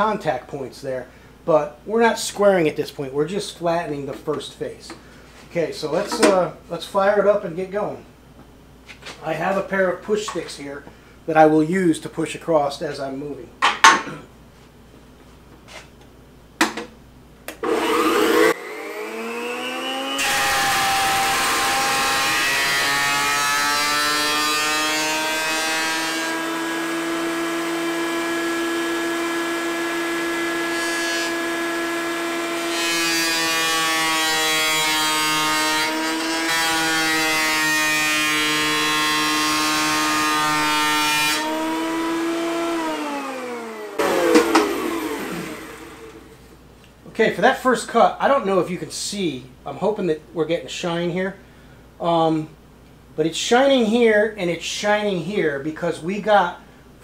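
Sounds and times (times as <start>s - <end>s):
jointer motor whining: 17.5s - 22.8s, 39.2s - 46.3s
jointer cutting board: 17.5s - 46.3s.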